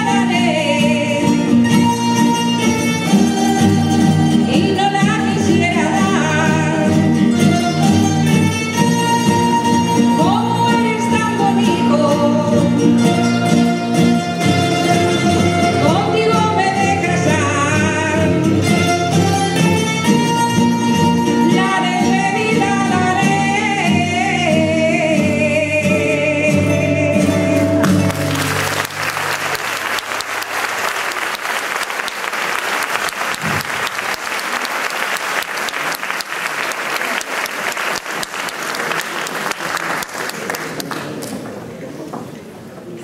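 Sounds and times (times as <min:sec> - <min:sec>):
string band playing folk music: 0:00.0 - 0:36.2
person singing: 0:02.9 - 0:07.2, 0:10.1 - 0:13.0, 0:14.8 - 0:18.7, 0:21.3 - 0:28.4
audience applause: 0:27.8 - 0:41.5.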